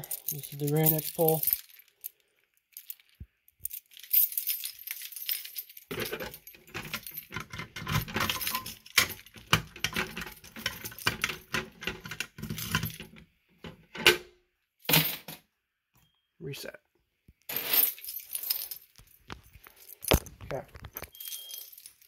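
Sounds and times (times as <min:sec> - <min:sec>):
keys jangling: 0:00.0 - 0:13.1, 0:17.6 - 0:22.0.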